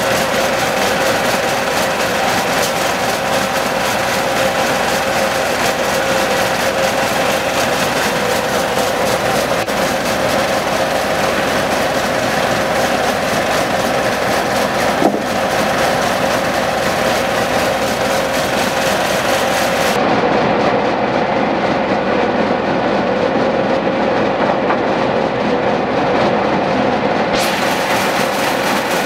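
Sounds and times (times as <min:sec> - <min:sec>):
diesel engine drone: 0:00.0 - 0:29.0
saw blade whine: 0:00.0 - 0:29.0
short knock: 0:15.0 - 0:15.3.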